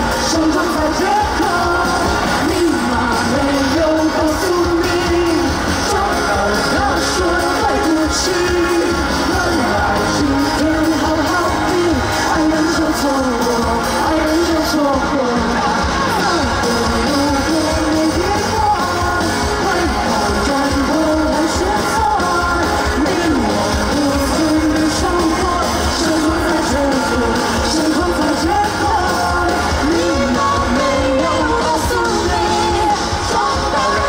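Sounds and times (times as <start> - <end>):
person singing: 0.0 - 34.0
pop-rock band playing: 0.0 - 34.0
steady drum beat: 0.0 - 34.0.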